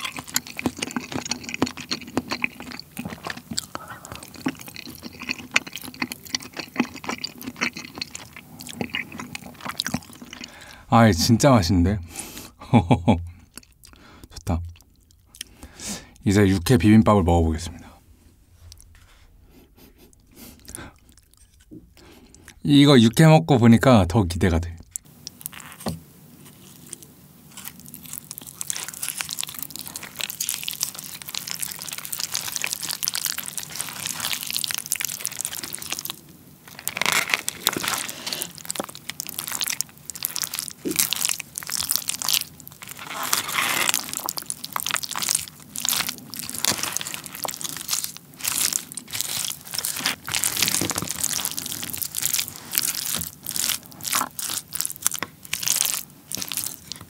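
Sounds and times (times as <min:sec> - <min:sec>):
spoon stirring crunchy greens: 0:00.0 - 0:10.8, 0:25.0 - 0:57.0.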